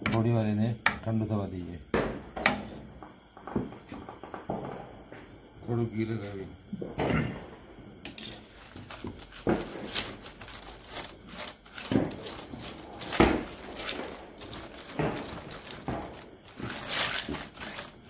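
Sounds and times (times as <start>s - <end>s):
plastic sheet crinkling: 8.2s - 18.0s.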